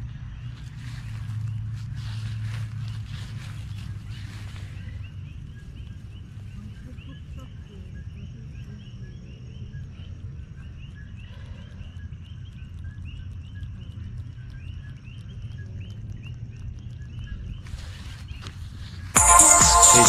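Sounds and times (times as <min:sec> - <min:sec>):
small animals chirping: 0:03.1 - 0:18.3.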